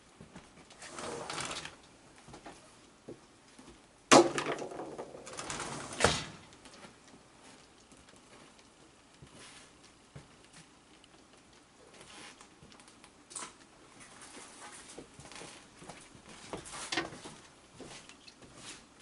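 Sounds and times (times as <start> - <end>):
plastic bucket clattering: 4.1 - 6.3.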